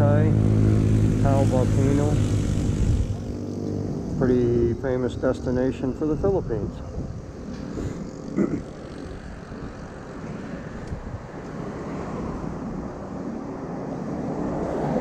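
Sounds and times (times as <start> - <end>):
motorcycle engine running: 0.0 - 6.2, 7.0 - 11.3
wind rush on microphone: 0.0 - 15.0.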